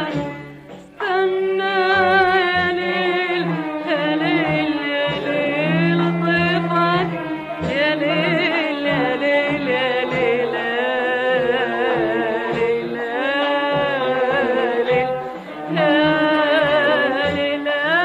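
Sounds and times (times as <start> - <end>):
musical accompaniment: 0.0 - 18.0
woman singing ornamented melody: 7.8 - 18.0.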